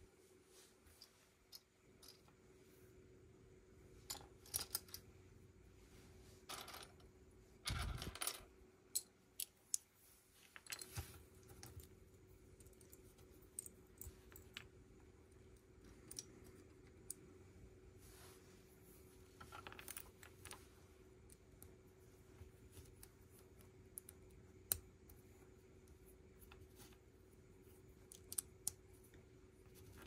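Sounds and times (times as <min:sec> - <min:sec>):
pieces rustling: 0:09.8 - 0:14.8, 0:19.1 - 0:20.7.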